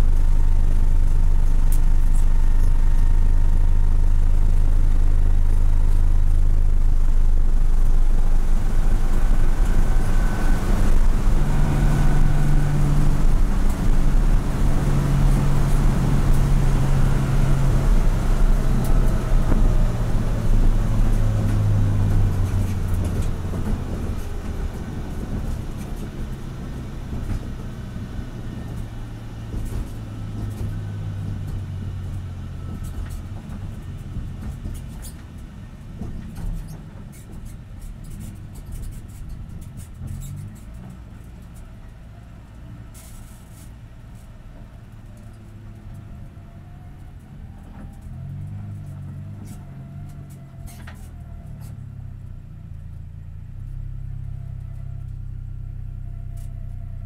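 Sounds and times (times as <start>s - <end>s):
road noise inside car: 0.0s - 57.0s
car engine revs dropping: 7.6s - 27.7s.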